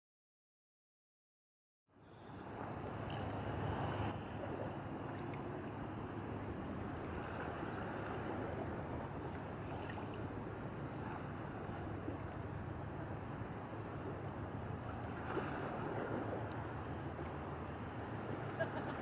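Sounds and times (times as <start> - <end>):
wind: 1.9 - 19.0
rushing water: 2.6 - 19.0.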